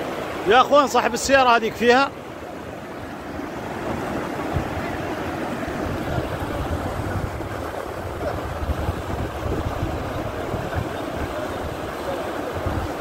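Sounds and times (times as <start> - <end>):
floodwater rushing down a street: 0.0 - 13.0
low rumbling on microphone: 5.6 - 11.8.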